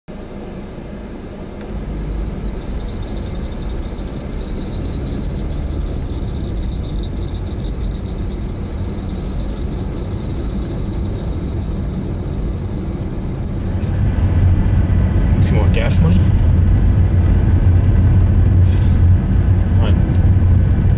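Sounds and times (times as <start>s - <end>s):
car engine and road rumble: 0.1s - 20.9s.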